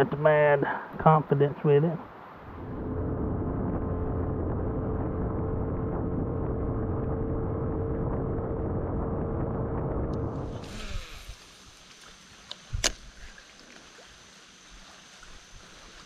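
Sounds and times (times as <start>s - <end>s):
rushing wind and water: 2.0s - 16.0s
outboard motor running: 2.5s - 11.4s.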